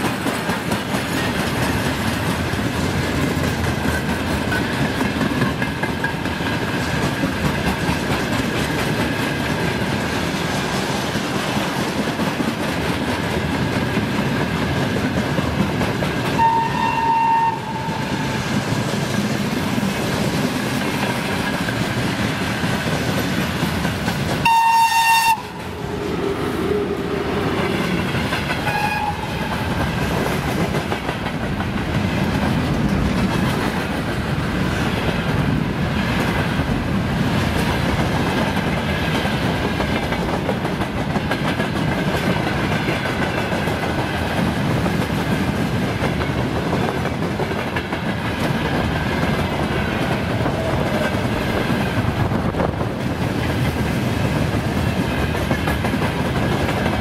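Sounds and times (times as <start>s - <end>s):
freight train wagons rolling past: 0.0s - 57.0s
locomotive horn blast: 16.4s - 18.4s, 24.4s - 25.6s, 28.6s - 29.6s.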